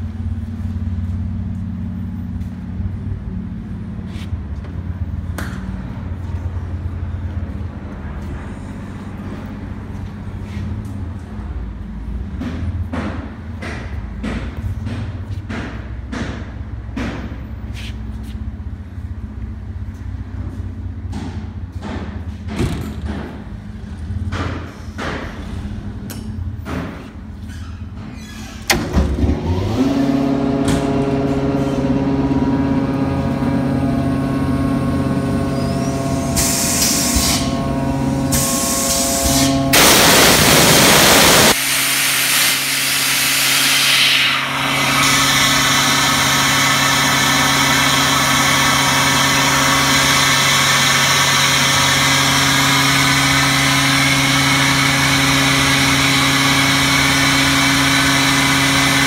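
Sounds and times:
air compressor motor humming: 28.7s - 59.0s
loud hissing: 38.3s - 48.1s.

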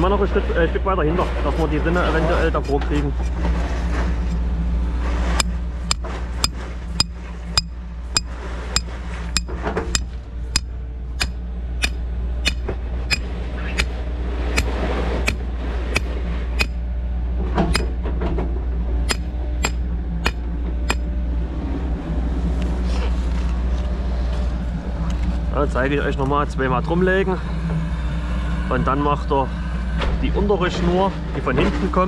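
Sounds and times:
low engine hum: 0.0s - 32.0s
hammer striking a nail: 10.6s - 13.2s, 14.6s - 16.8s, 19.1s - 21.0s.

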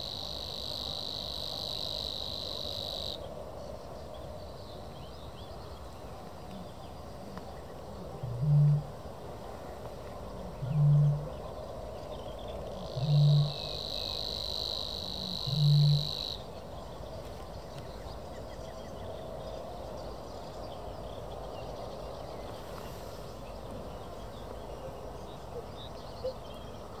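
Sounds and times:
deep low hoots: 8.2s - 8.9s, 10.6s - 11.4s, 12.9s - 14.2s, 15.2s - 16.4s.

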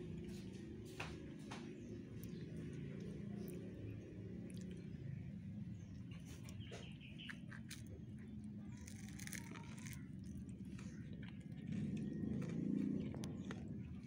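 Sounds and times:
cat chewing and crunching: 0.0s - 14.0s
steady low hum: 0.0s - 14.0s
bird chirps: 5.9s - 7.6s.

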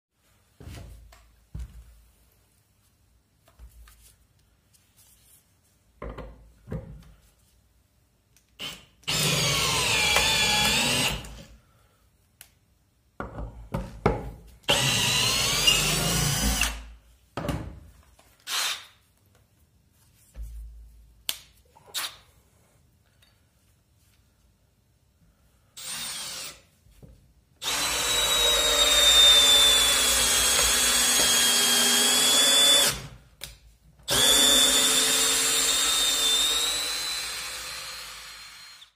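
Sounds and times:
cordless drill boring into wood: 8.6s - 11.4s, 14.7s - 16.8s, 18.5s - 18.8s, 25.8s - 26.6s, 27.6s - 33.1s, 34.1s - 38.9s.

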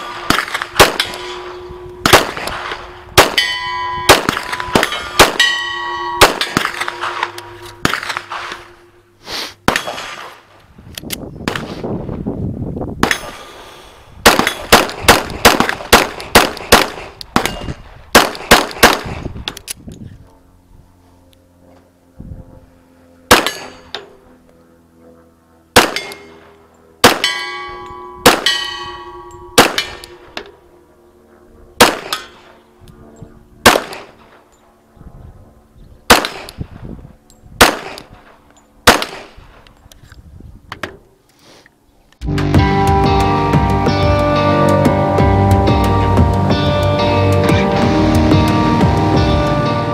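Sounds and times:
pistol shots: 0.0s - 3.5s, 4.1s - 5.6s, 6.2s - 8.7s, 9.6s - 10.4s, 14.2s - 19.3s, 23.3s - 23.8s, 25.8s - 26.4s, 27.0s - 27.6s, 28.2s - 28.8s, 29.6s - 30.3s, 31.8s - 32.5s, 33.6s - 34.3s, 36.1s - 36.6s, 37.6s - 38.1s, 38.8s - 39.4s
steel targets ringing: 0.0s - 9.1s, 25.9s - 30.4s.

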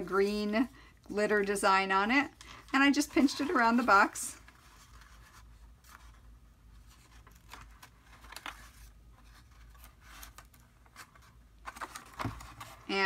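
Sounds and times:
paper rustling and scraping: 2.8s - 13.0s.

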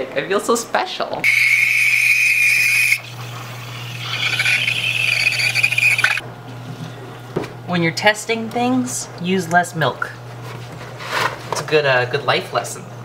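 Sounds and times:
steam wand hissing and squealing: 1.2s - 6.2s.

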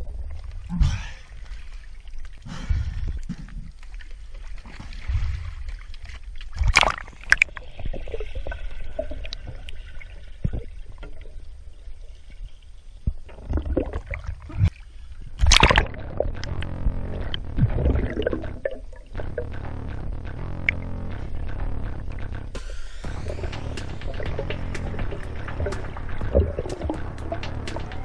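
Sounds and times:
water sloshing and splashing: 0.0s - 16.5s
muffled underwater rushing: 13.0s - 28.0s.

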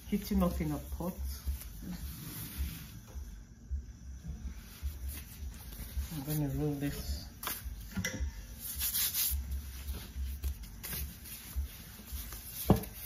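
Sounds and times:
rolling pin rubbing dough: 8.5s - 13.0s.

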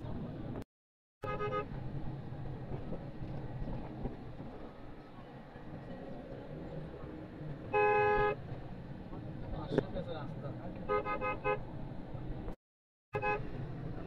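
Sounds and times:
car engine and tyres rumbling: 0.0s - 0.6s, 1.2s - 12.6s, 13.2s - 14.0s.

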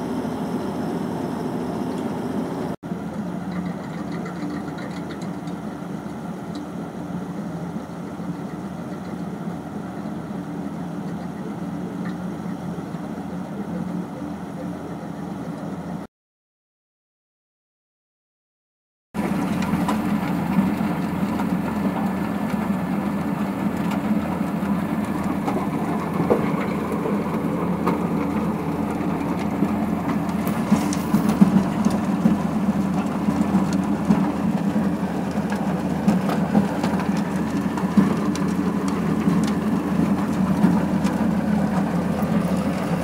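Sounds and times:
tractor diesel engine under load: 0.0s - 16.0s, 19.2s - 43.0s
rotary ditcher cutting soil: 19.2s - 43.0s.

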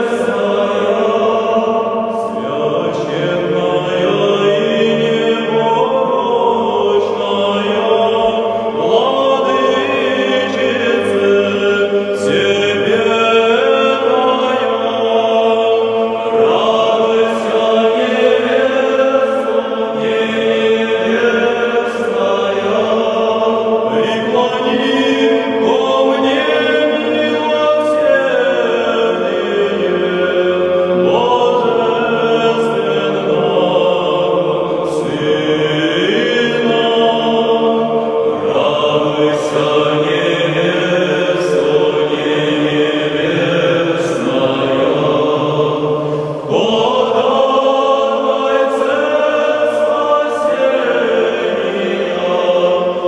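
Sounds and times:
choir chanting: 0.0s - 53.0s.

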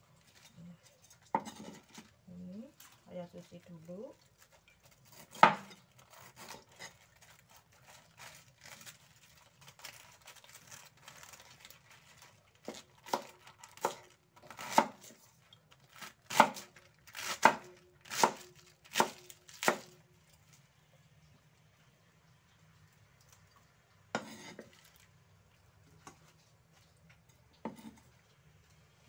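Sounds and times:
cleaver slicing cabbage: 4.3s - 20.0s.

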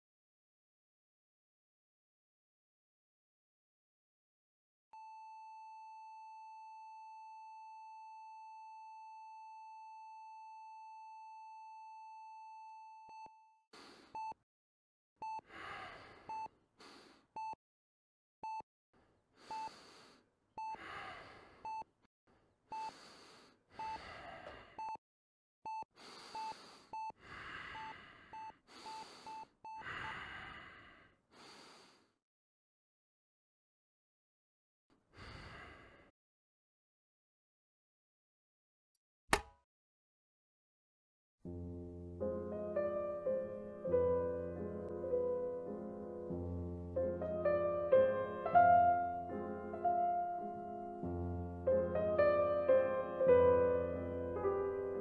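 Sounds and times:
heavy gasping breaths: 20.8s - 21.7s, 22.8s - 24.9s.

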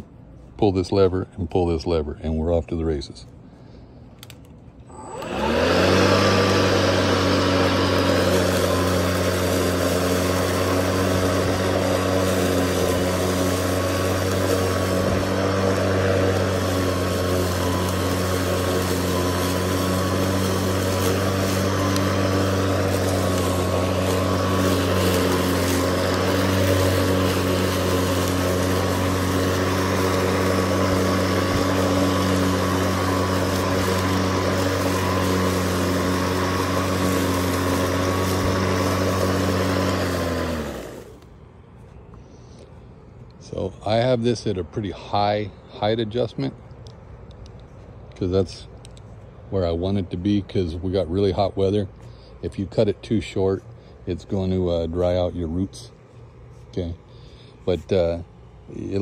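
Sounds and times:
lawn mower humming: 0.0s - 59.0s
mower blade rushing: 4.2s - 41.4s.

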